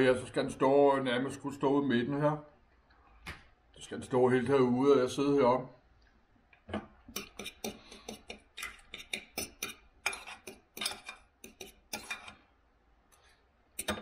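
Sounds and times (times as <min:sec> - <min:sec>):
cutlery clinking on a plate: 0:07.1 - 0:12.4, 0:13.8 - 0:14.0.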